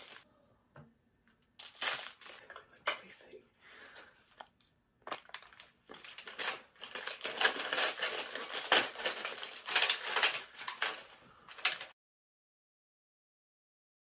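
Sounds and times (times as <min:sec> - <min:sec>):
plastic snack bag crinkling: 0:00.0 - 0:00.2, 0:01.6 - 0:02.5, 0:04.3 - 0:11.9.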